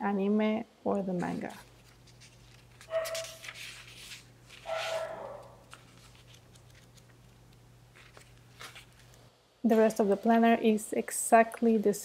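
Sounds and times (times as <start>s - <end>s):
thin paper pages flipping: 1.2s - 9.2s.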